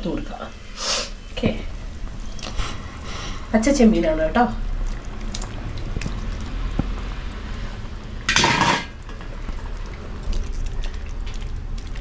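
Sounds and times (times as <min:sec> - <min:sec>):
loud clatter: 0:08.3 - 0:08.9.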